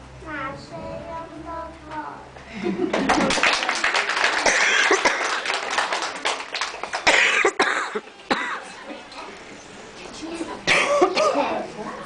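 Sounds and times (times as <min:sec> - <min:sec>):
children's voices: 0:00.2 - 0:02.4, 0:08.3 - 0:12.0
hands clapping unevenly: 0:02.9 - 0:08.1.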